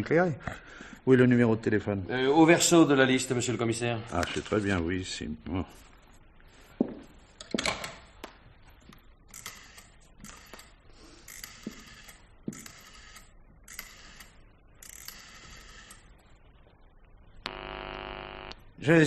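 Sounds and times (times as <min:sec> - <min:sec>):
rotary telephone dial whirring: 0:09.3 - 0:16.1.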